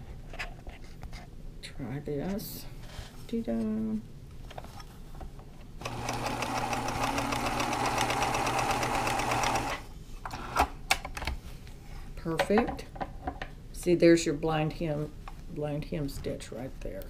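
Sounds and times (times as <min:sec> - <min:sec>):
sewing machine running: 0:05.8 - 0:09.8.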